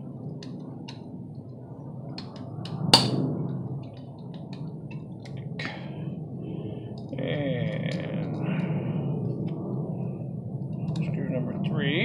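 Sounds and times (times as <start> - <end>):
sharp knock: 2.9 - 3.2.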